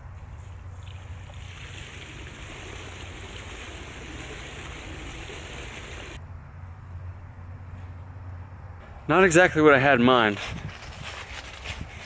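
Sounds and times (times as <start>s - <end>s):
water gushing out of a pool: 0.8s - 6.2s.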